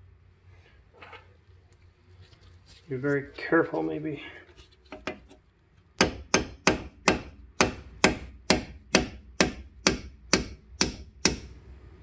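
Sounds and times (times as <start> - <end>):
hammer tapping metal pin: 6.0 - 11.5.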